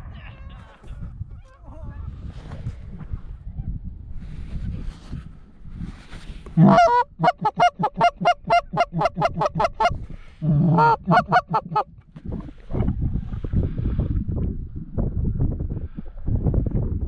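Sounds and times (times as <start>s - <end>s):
goose honking: 6.6s - 9.9s, 10.5s - 11.9s.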